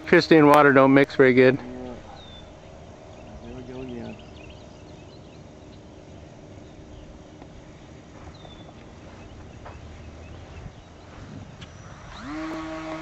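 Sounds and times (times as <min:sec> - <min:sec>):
steady low rumble: 0:00.0 - 0:12.3
high bird chirps: 0:02.0 - 0:07.4.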